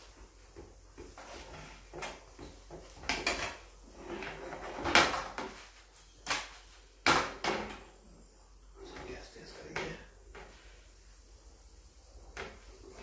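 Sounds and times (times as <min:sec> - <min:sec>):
spatula scraping a griddle: 0:01.0 - 0:05.8.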